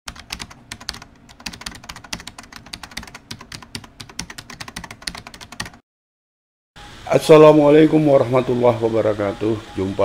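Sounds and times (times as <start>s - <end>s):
rapid keyboard typing: 0.1s - 5.8s.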